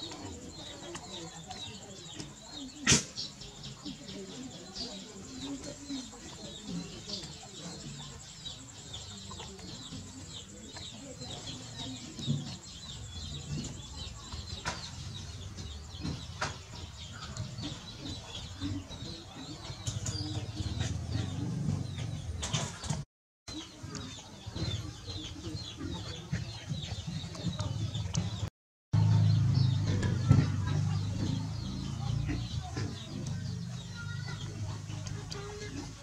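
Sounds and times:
birds chirping: 0.0 - 36.0.

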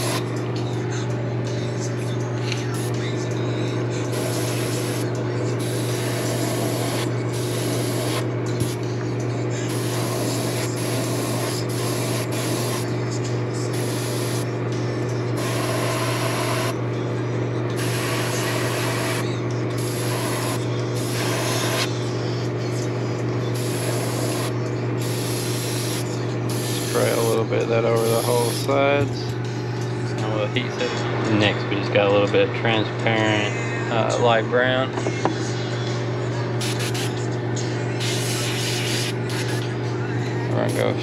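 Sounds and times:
airbrush hissing: 0.0 - 0.2, 4.1 - 8.8, 9.7 - 12.9, 19.8 - 21.9, 23.6 - 27.4, 28.0 - 28.7, 36.6 - 37.1, 38.0 - 39.6.

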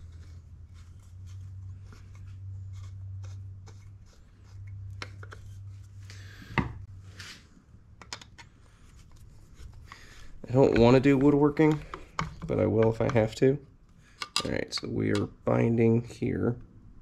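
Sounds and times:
light clicks taps and rubbing: 9.1 - 15.3.

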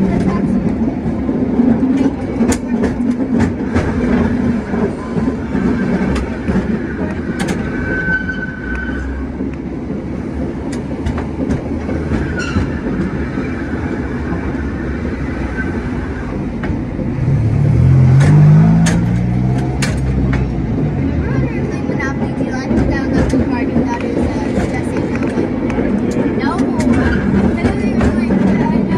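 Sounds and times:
cable car rumbling and rattling: 0.0 - 28.9.

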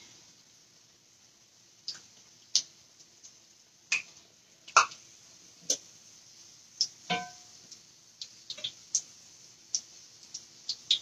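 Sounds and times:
oil sizzling in a skillet: 0.0 - 11.0.

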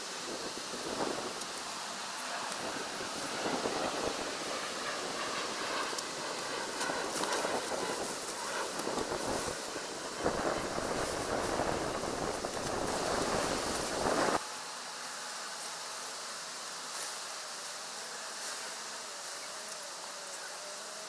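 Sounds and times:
loud rough rustle: 0.0 - 14.4
steady hiss: 0.0 - 21.0.

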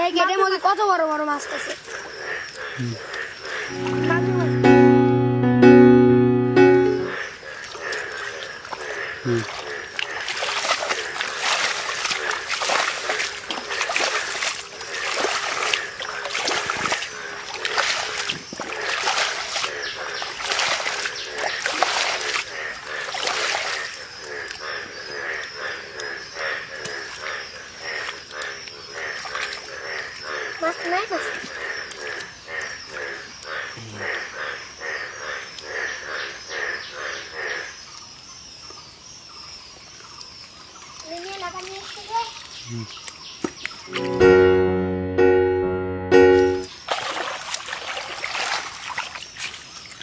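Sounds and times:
croaking animal calls: 1.2 - 4.0, 7.1 - 37.8
muddy water splashing: 7.3 - 25.5, 26.8 - 32.4, 40.9 - 44.6, 46.6 - 50.0.

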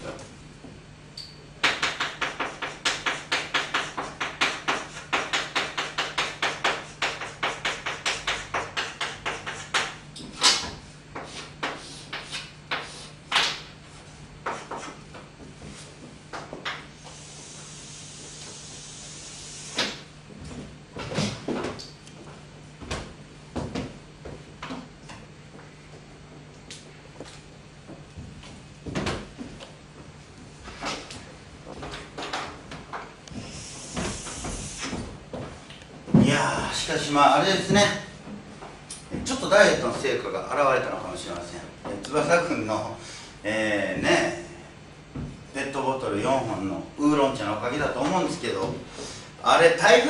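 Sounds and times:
chalk tapping on blackboard: 1.6 - 10.0, 11.1 - 13.7, 14.4 - 15.0, 33.4 - 35.0
chalk scraping on blackboard: 2.1 - 10.0, 11.2 - 13.2, 14.5 - 15.0.

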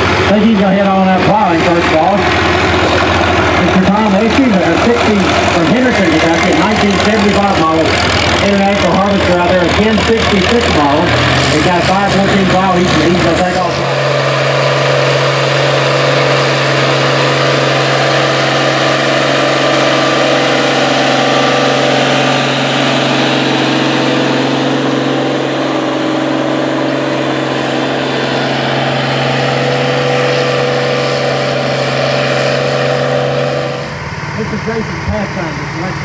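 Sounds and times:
tractor diesel engine running: 0.0 - 36.0.

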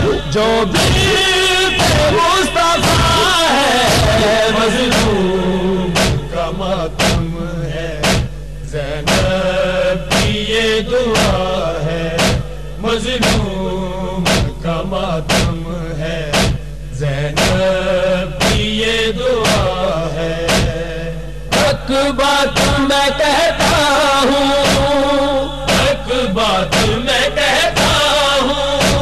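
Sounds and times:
man chanting: 0.0 - 8.1, 16.9 - 29.0.

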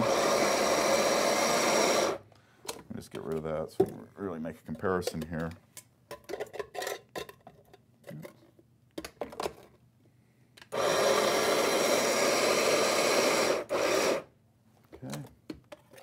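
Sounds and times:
coffee grinder whirring: 0.0 - 2.2, 10.7 - 14.3.

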